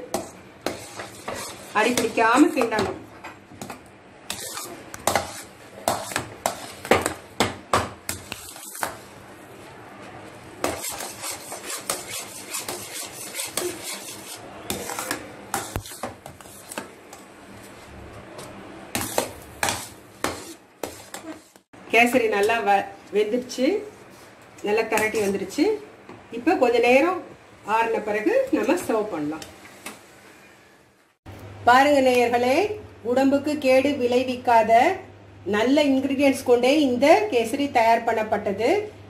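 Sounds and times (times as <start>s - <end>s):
spoon scraping a metal pan: 0.7s - 2.1s, 10.7s - 16.0s.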